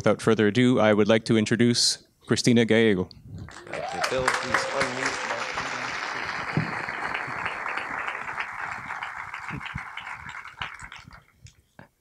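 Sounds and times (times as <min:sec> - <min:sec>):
audience applauding: 0:03.5 - 0:11.3.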